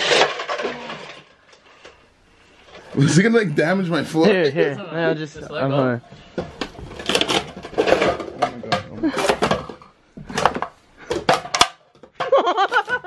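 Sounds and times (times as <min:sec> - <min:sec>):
plastic cups clacking together: 0:00.0 - 0:02.0, 0:06.3 - 0:13.0.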